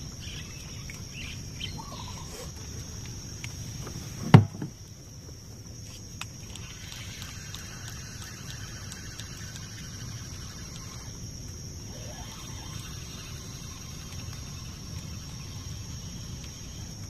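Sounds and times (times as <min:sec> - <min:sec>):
insects droning: 0:00.0 - 0:17.0
low background rumble: 0:00.0 - 0:17.0
faint ticks: 0:05.8 - 0:17.0.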